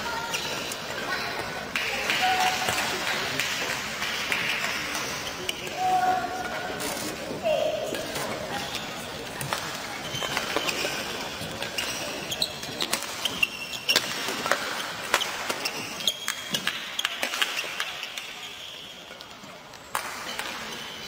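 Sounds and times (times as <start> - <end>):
shoes squeaking on court: 7.9 - 17.8.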